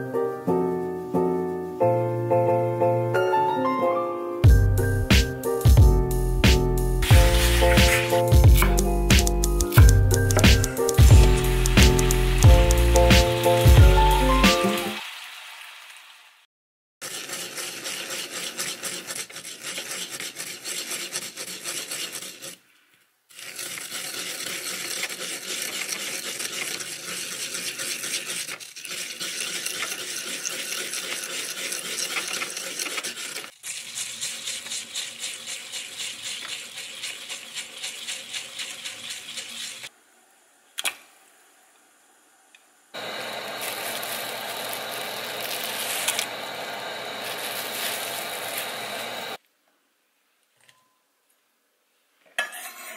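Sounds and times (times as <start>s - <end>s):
repeated strokes: 6.4s - 15.0s, 23.3s - 39.9s
hands rubbing salt in ceramic bowl: 7.0s - 14.4s, 17.1s - 22.6s, 23.3s - 39.9s, 47.2s - 48.8s.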